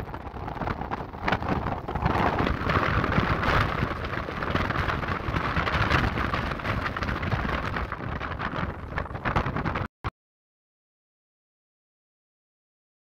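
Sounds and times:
wind buffeting microphone: 0.0 - 9.9.

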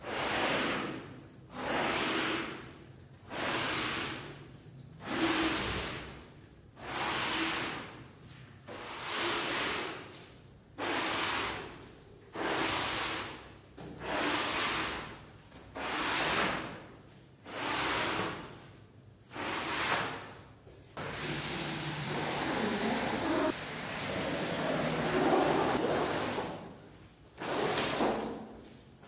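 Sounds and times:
brush scrubbing a rug: 12.4 - 13.4, 21.0 - 26.8.

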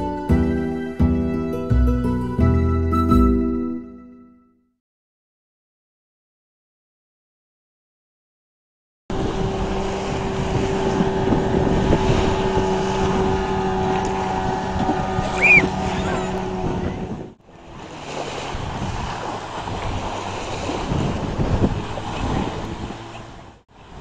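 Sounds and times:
outboard motor running: 9.1 - 23.6
water and waves: 9.1 - 24.0
wind on microphone: 9.1 - 24.0
short high squeak: 15.3 - 16.4.

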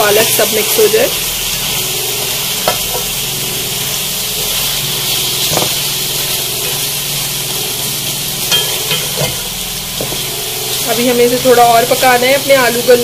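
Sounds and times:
curry sizzling in a pan: 0.0 - 13.0
spatula stirring and knocking pan: 0.1 - 13.0.

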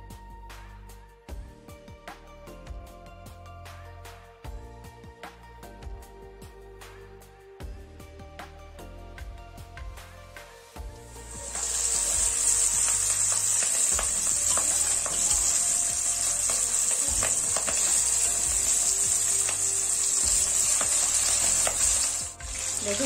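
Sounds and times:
oil sizzling and crackling: 11.1 - 23.0.

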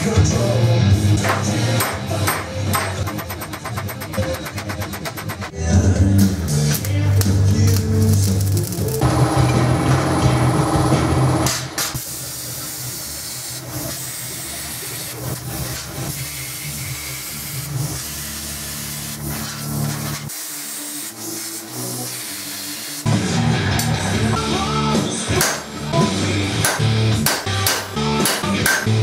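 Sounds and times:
background music: 0.0 - 11.8, 23.0 - 29.0
plasma cutter hissing: 11.4 - 23.1.

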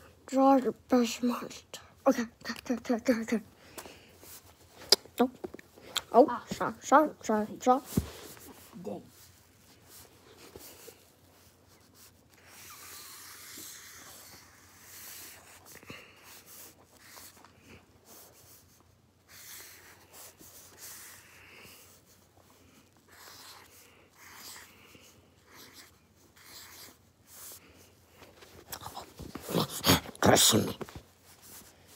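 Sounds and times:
pen scratching on paper: 12.0 - 15.6, 19.3 - 21.9, 23.1 - 24.7, 25.5 - 27.6.

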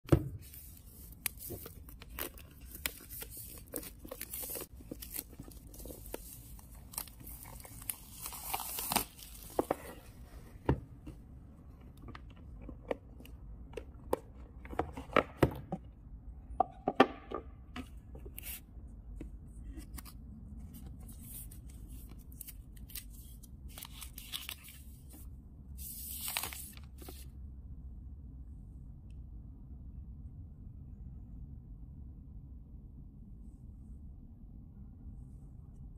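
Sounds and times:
packaging tearing and crinkling: 1.3 - 9.7.

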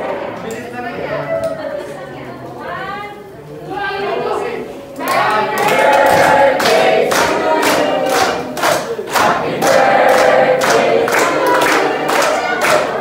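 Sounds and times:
group of people singing: 3.7 - 13.0
people clapping in time: 5.0 - 13.0.

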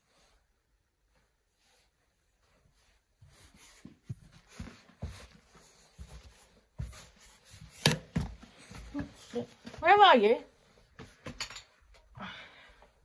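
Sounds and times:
footsteps on floor: 2.4 - 11.6.

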